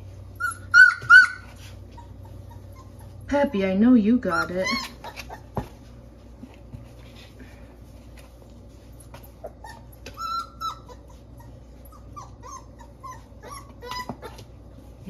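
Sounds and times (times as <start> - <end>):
puppy whining: 0.0 - 3.3, 4.2 - 6.0, 8.8 - 15.0
puppies whimpering: 0.3 - 3.3, 4.2 - 5.8, 9.3 - 14.6.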